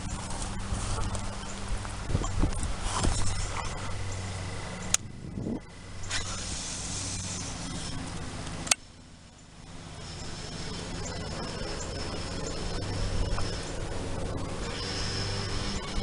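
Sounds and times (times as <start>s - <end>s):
wind on microphone: 0.0s - 8.2s
sharp clicks: 8.4s - 8.9s.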